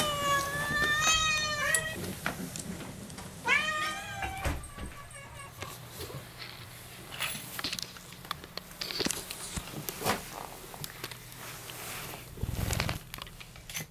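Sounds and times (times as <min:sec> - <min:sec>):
cat rubbing against camera: 0:11.8 - 0:13.1.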